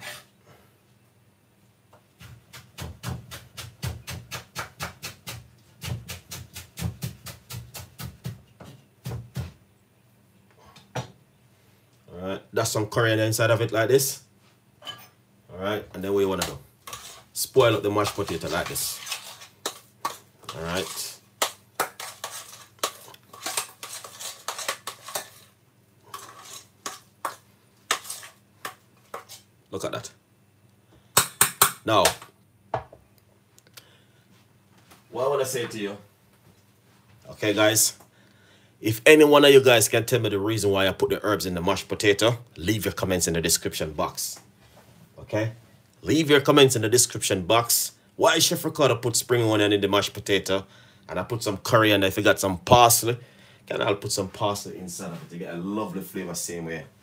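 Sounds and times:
metal utensil scraping a saucepan: 0.0s - 0.3s, 16.4s - 25.5s, 26.1s - 28.4s
knife chopping on wooden board: 2.2s - 9.6s.

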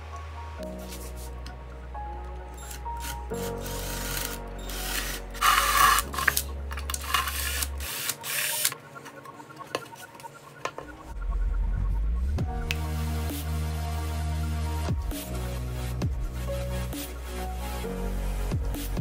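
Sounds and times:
background music: 0.0s - 19.0s
hole saw drilling wood: 3.0s - 8.8s.

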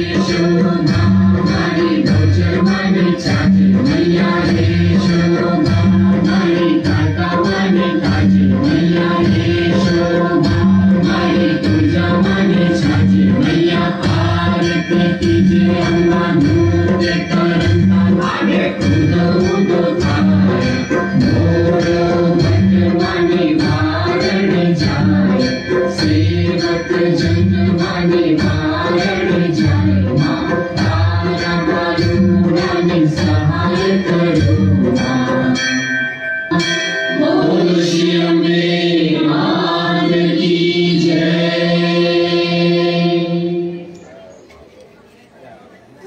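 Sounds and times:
steady drumbeat: 0.0s - 35.6s
voices singing together: 0.0s - 44.2s
steady held notes: 0.0s - 44.6s.

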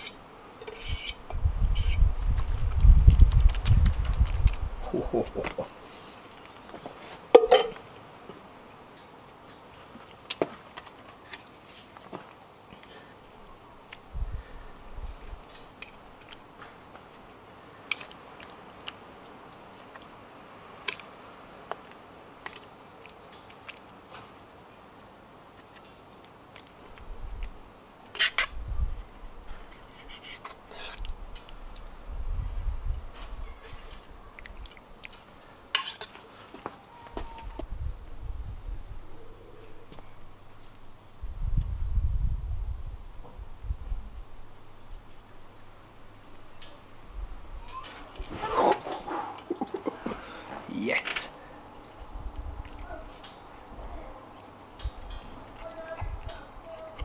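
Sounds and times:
fork scraping metal bowl: 0.0s - 2.1s, 30.0s - 31.1s, 35.7s - 36.2s
bird chirping: 38.1s - 41.9s, 44.9s - 45.9s.

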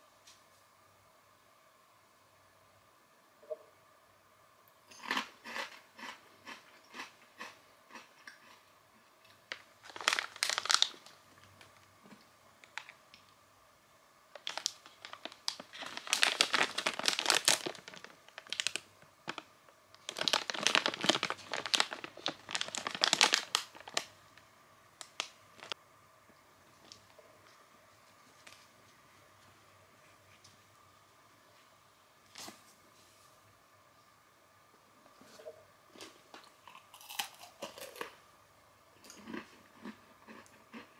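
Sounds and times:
plastic snack bag crinkling: 9.5s - 13.3s, 14.3s - 24.2s, 25.0s - 25.8s.

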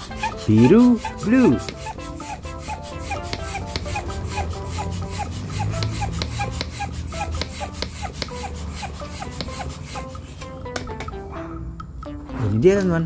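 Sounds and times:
hand pump rasping: 0.0s - 10.6s.

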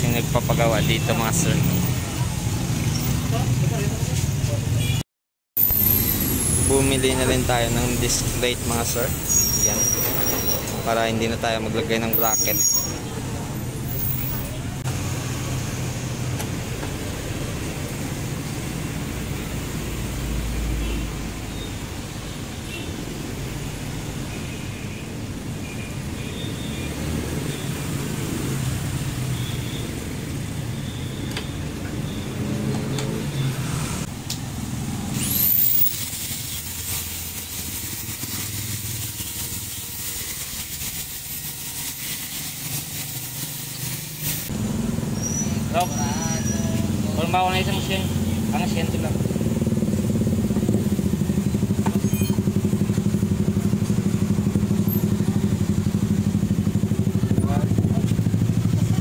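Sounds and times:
vehicle engine humming: 13.0s - 59.0s.

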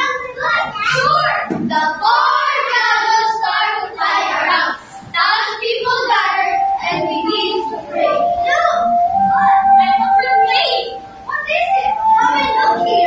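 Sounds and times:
children singing in unison: 0.8s - 10.2s.

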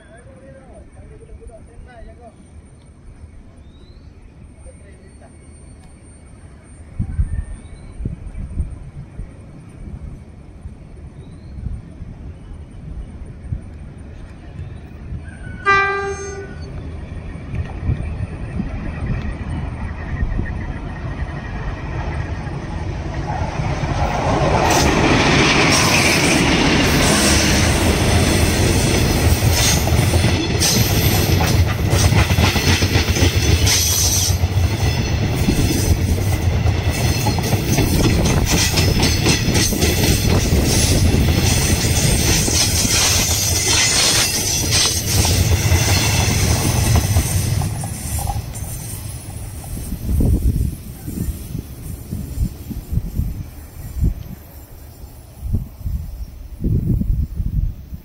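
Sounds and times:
diesel locomotive rumble: 4.5s - 58.0s
train wheels clattering on rails: 16.3s - 53.1s.

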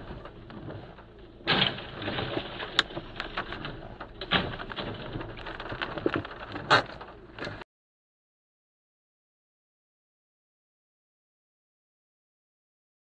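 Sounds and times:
knocks and clatter: 0.0s - 7.6s
steady car noise: 0.0s - 7.6s.

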